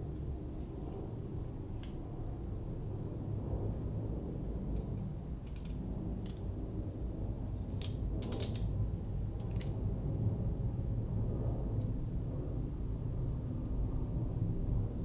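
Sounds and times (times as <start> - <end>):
steady low hum: 0.0 - 15.0
small parts clicking and tapping: 4.7 - 6.5, 7.7 - 9.8.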